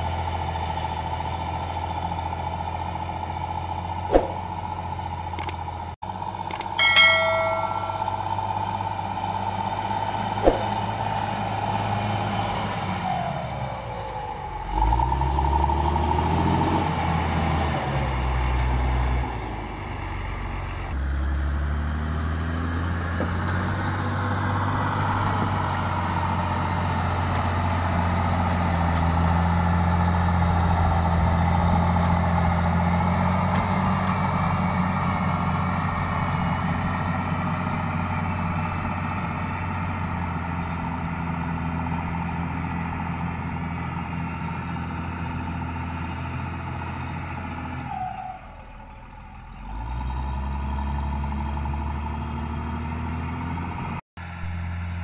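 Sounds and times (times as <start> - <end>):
short electronic chime: 6.8 - 8.6
diesel engine revving: 10.0 - 55.0.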